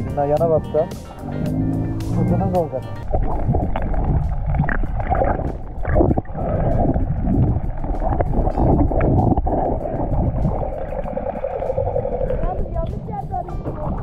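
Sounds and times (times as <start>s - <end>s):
underwater rumble of moving water: 1.2s - 14.0s
underwater clicks and knocks: 3.0s - 14.0s.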